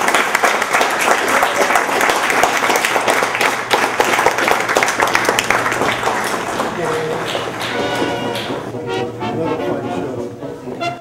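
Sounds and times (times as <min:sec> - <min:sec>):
audience applauding: 0:00.0 - 0:08.7.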